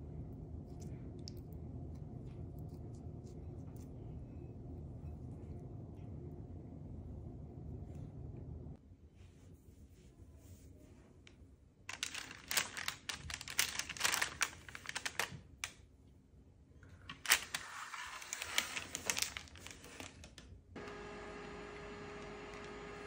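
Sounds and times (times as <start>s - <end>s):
baking paper rustling and clicking: 11.9s - 15.8s, 17.1s - 20.5s.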